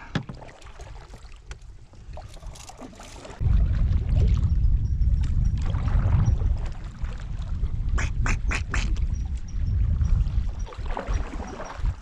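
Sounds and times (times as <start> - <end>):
small knocks in canoe: 0.0 - 0.7
water lapping: 0.0 - 4.5, 5.3 - 12.0
wind buffeting microphone: 3.3 - 12.0.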